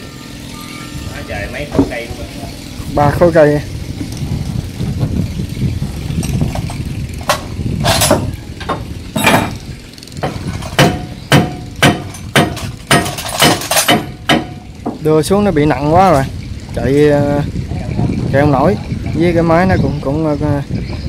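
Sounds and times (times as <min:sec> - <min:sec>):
low steady rumble: 0:00.0 - 0:21.0
metal tools clinking and knocking: 0:06.2 - 0:09.6, 0:10.2 - 0:15.0.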